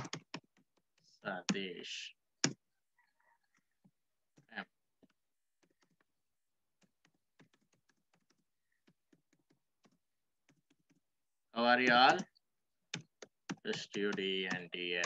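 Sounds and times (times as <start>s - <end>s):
typing on computer keyboard: 0.0s - 1.7s, 5.5s - 11.1s, 11.8s - 15.0s.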